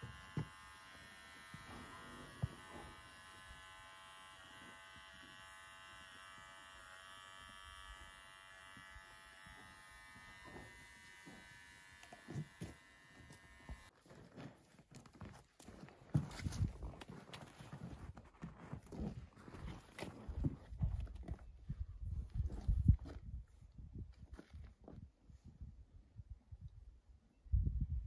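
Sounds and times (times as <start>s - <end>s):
electric hair clippers buzzing: 0.0s - 13.9s.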